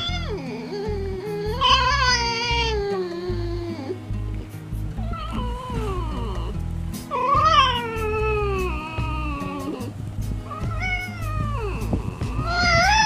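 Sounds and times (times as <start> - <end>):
fox calling: 0.0 - 13.0.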